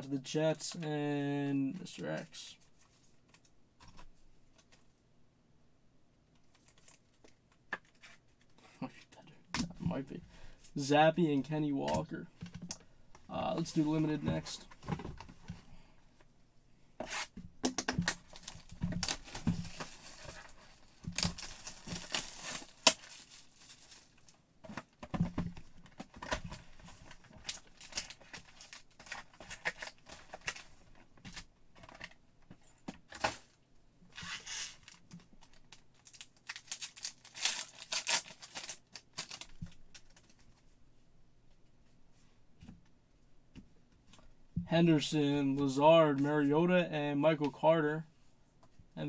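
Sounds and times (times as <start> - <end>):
foil pack tearing: 36.1 - 39.5.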